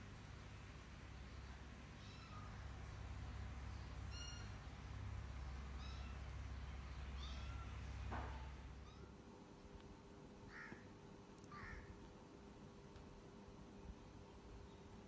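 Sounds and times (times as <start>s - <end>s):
kittens mewing: 10.5s - 12.0s.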